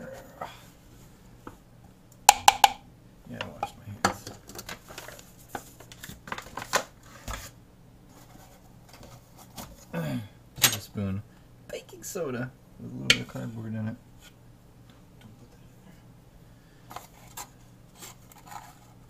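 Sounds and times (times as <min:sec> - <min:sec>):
paper bag rustling: 0:04.6 - 0:07.6.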